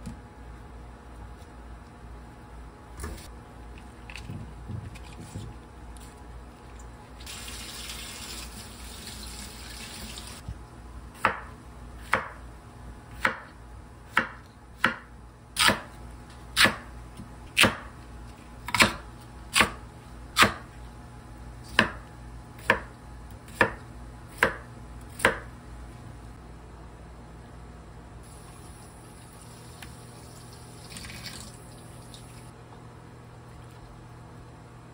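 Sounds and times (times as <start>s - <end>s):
knife chopping on wooden board: 11.2s - 12.4s, 13.1s - 13.5s, 14.1s - 15.9s, 16.6s - 16.9s, 17.6s - 17.9s, 18.6s - 19.8s, 20.4s - 20.7s, 21.7s - 22.0s, 22.6s - 22.9s, 23.5s - 25.5s.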